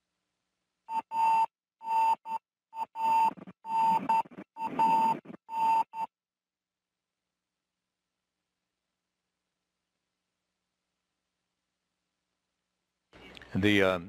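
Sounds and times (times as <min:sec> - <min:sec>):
electronic beeping tone: 0:00.9 - 0:06.1.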